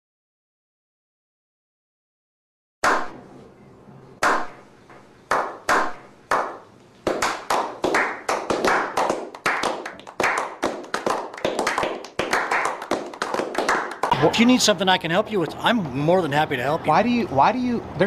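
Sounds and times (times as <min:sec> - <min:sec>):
hand clapping: 0:04.2 - 0:04.6, 0:05.3 - 0:14.2.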